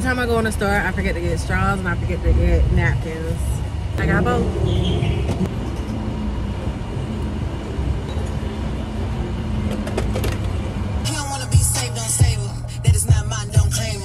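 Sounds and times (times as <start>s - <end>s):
van engine rumble inside cabin: 0.0s - 14.0s
music: 11.1s - 14.0s.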